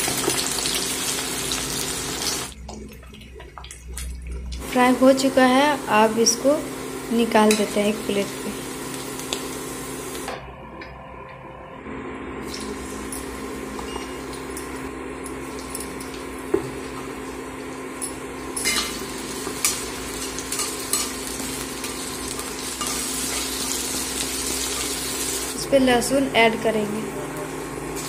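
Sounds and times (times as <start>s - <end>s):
onions sizzling in oil: 0.0s - 2.5s, 4.6s - 10.3s, 15.4s - 25.7s
steady hum: 2.4s - 28.0s.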